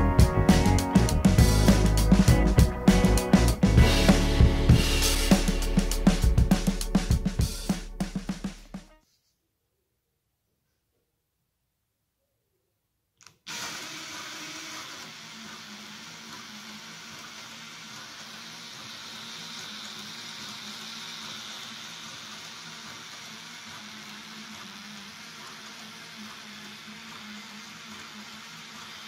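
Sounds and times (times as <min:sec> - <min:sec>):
cordless drill whirring: 0:13.2 - 0:29.0.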